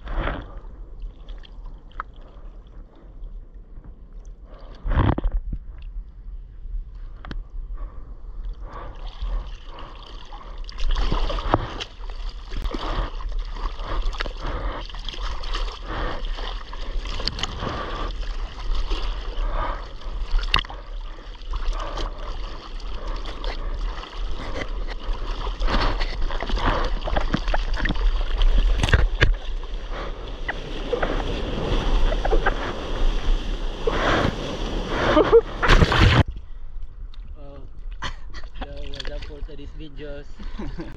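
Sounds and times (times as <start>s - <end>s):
seawater splashing: 8.8s - 36.3s.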